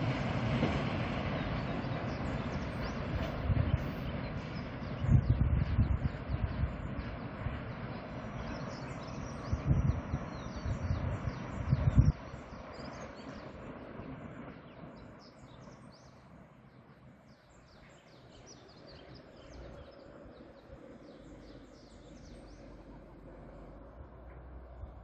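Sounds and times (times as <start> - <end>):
small birds chirping: 7.2 - 23.0
faint low rumble: 19.4 - 25.0.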